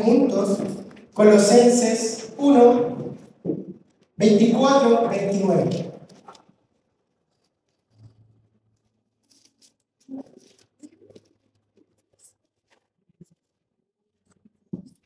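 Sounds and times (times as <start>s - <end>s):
pages rustling: 6.0s - 8.2s, 9.2s - 13.5s.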